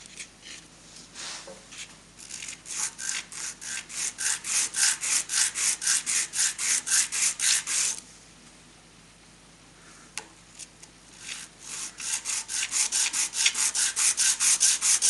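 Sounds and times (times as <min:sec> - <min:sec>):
metal rasping on abrasive cloth: 0:02.3 - 0:08.0, 0:11.2 - 0:15.0.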